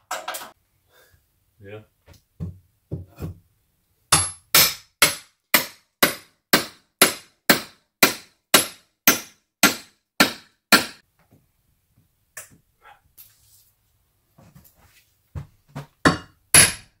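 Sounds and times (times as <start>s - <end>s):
hammer striking metal bar: 4.1s - 11.0s, 16.0s - 17.0s.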